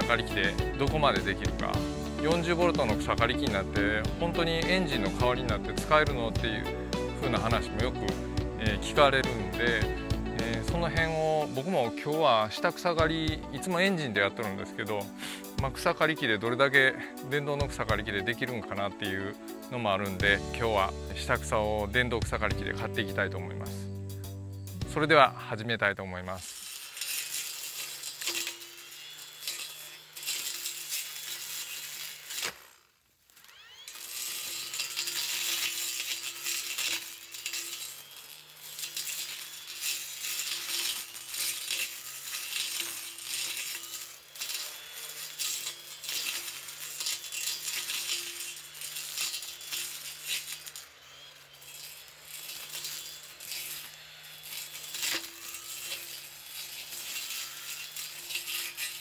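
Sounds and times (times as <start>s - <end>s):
brush cutter motor hum: 0.0s - 59.0s
grass stems striking blade: 26.5s - 32.8s, 33.9s - 59.0s.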